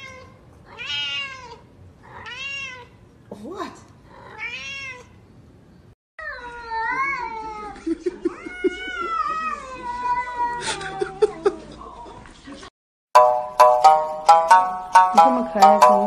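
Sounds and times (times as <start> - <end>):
cat meowing: 0.0 - 3.0, 4.1 - 5.2, 6.2 - 11.2.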